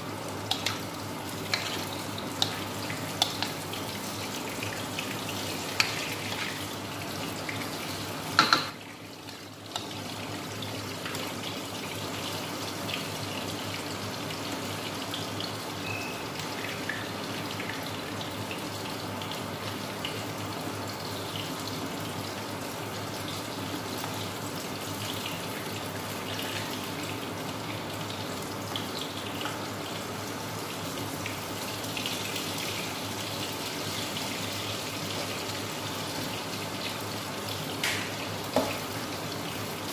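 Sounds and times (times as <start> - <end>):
food sizzling in a wok: 0.0 - 8.8.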